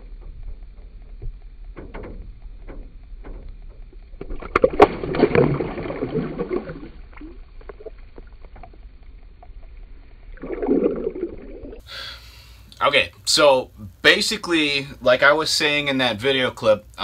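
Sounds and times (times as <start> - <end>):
fish splashing in water: 4.2 - 8.8.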